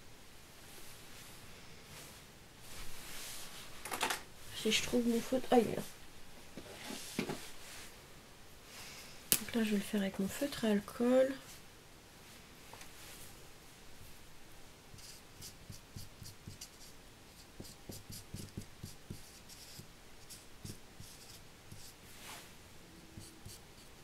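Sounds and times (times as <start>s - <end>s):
marker scratching on paper: 15.0s - 22.0s, 23.2s - 24.0s.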